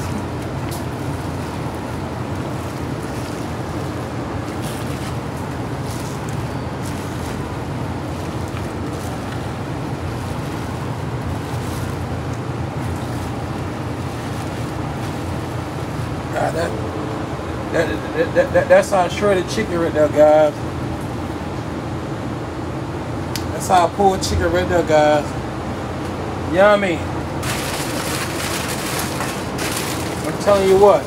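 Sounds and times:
plastic crinkling and rustling: 0:00.0 - 0:16.4, 0:27.4 - 0:31.0
steady low rushing noise: 0:00.0 - 0:22.2.

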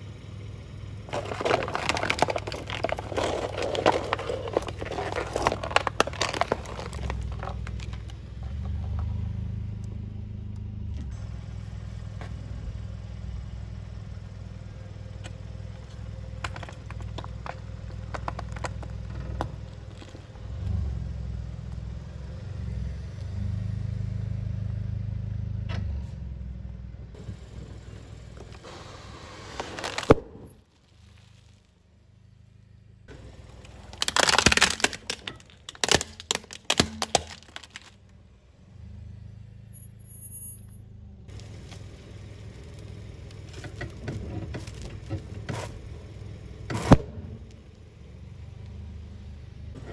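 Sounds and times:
car engine rumble: 0:00.0 - 0:49.9
tyre crushing objects: 0:01.1 - 0:08.1, 0:15.8 - 0:20.2, 0:29.4 - 0:30.6, 0:33.7 - 0:38.0
plastic cracking under tyre: 0:01.1 - 0:08.2, 0:15.2 - 0:20.4, 0:29.4 - 0:31.7, 0:33.5 - 0:38.2, 0:41.3 - 0:47.8.

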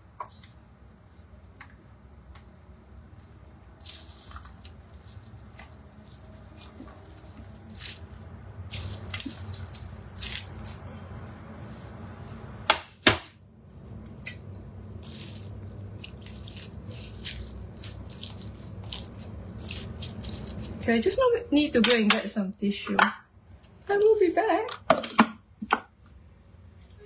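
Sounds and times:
low steady hum: 0:00.0 - 0:27.0
rustling of leafy greens: 0:03.8 - 0:12.3, 0:14.8 - 0:21.3.

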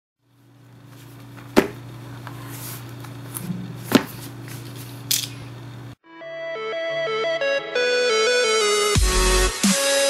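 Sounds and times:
steady low hum: 0:00.2 - 0:06.0
cardboard box knocks: 0:01.6 - 0:01.8.

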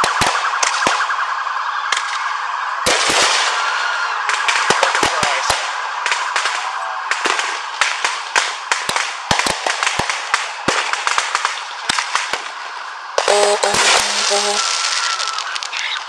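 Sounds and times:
fireworks bangs: 0:00.0 - 0:16.0
fireworks hiss: 0:10.8 - 0:16.0.

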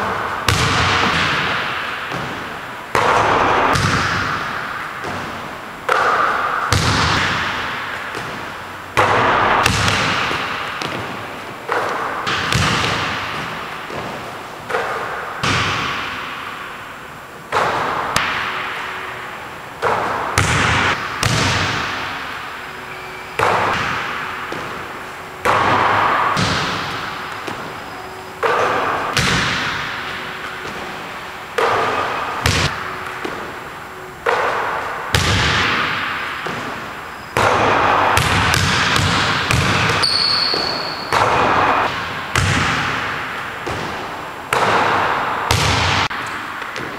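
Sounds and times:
basketball hitting rim and backboard: 0:00.0 - 0:16.8, 0:17.4 - 0:46.9
basketball bouncing on hardwood floor: 0:00.5 - 0:04.4, 0:09.0 - 0:16.1, 0:19.8 - 0:22.0, 0:23.4 - 0:24.8, 0:25.4 - 0:27.7, 0:31.6 - 0:33.5, 0:35.1 - 0:36.8, 0:38.2 - 0:42.9, 0:43.6 - 0:44.9.

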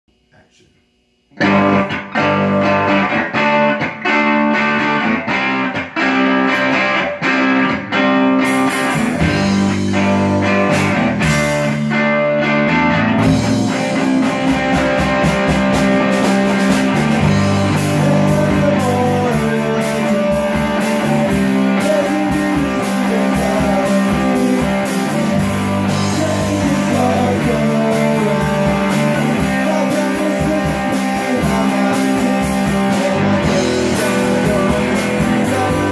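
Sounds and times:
rock band playing live: 0:01.4 - 0:35.9
person singing: 0:17.3 - 0:35.9.

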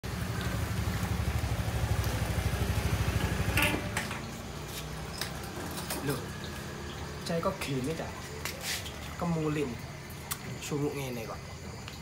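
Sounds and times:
scooter engine running: 0:00.0 - 0:06.9.

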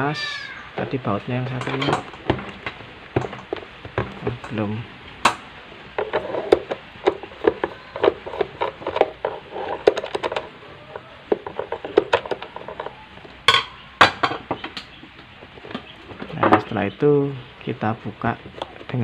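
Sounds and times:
plastic housing knocks: 0:01.5 - 0:04.6, 0:11.3 - 0:12.9
screwdriver scraping plastic: 0:06.0 - 0:13.0.

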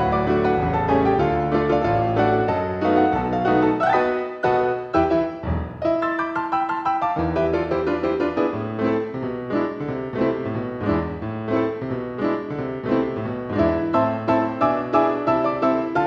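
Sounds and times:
lively solo piano music: 0:00.0 - 0:16.0.

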